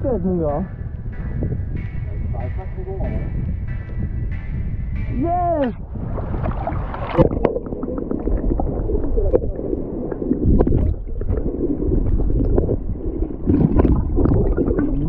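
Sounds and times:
underwater water sloshing: 0:05.2 - 0:15.0.

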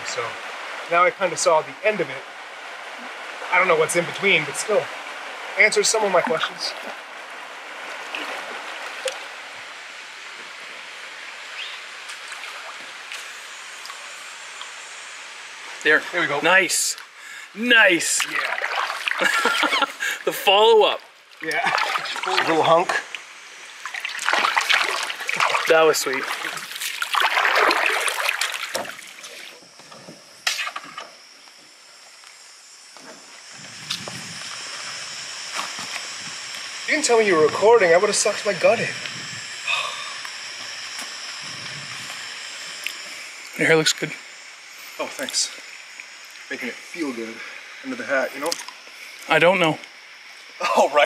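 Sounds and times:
flowing stream water: 0:00.0 - 0:29.8.

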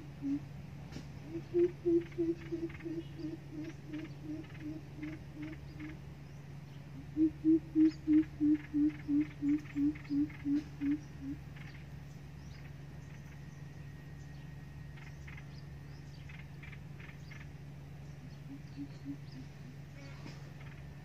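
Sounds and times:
bird deep hooting call: 0:00.0 - 0:00.6, 0:01.2 - 0:06.0, 0:06.9 - 0:11.8, 0:16.2 - 0:20.9
steady low drone: 0:00.0 - 0:21.0.

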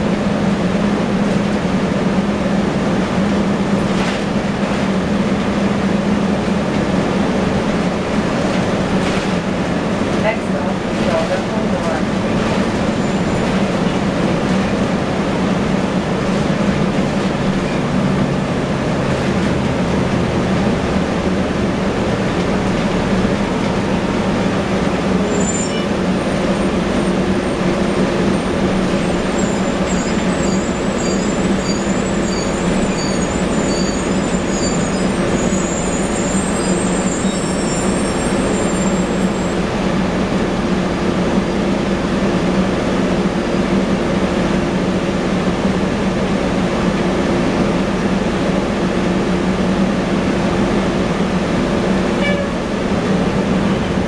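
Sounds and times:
rumble and rattle: 0:00.0 - 0:29.4
bus diesel engine droning: 0:00.0 - 0:54.0.

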